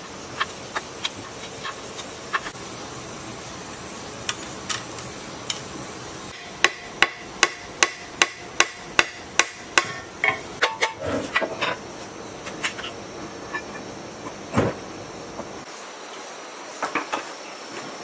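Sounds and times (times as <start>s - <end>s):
hammer striking metal: 6.4s - 11.0s.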